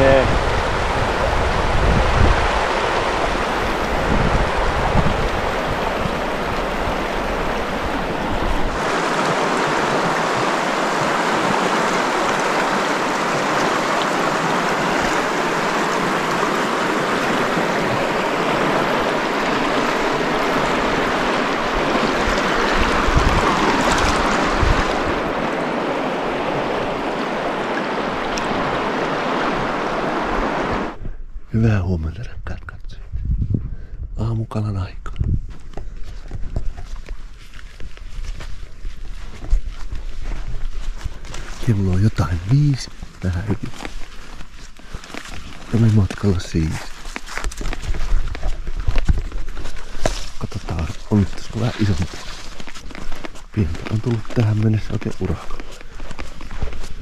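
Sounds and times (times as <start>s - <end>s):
river water rushing: 0.0s - 31.0s
wind buffeting microphone: 0.0s - 31.6s, 32.2s - 43.8s, 45.4s - 57.0s.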